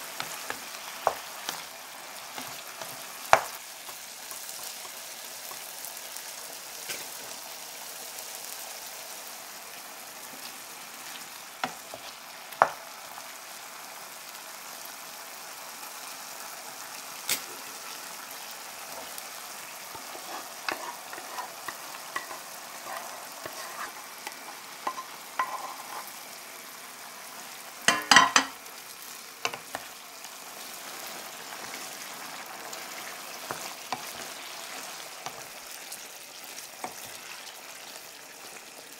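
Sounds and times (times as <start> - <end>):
chicken sizzling in oil: 0.0 - 38.9
wooden spatula knocking and scraping: 20.0 - 26.1.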